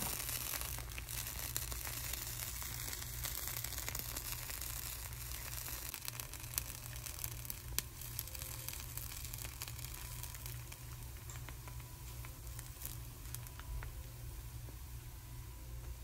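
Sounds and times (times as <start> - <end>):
batter sizzling in a hot pan: 0.0 - 14.0.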